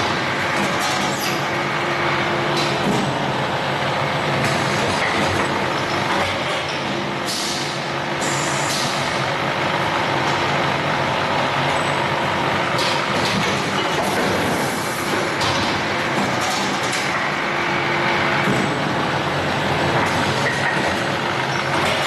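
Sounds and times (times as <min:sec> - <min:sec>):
machine mechanical hum: 0:00.0 - 0:22.0.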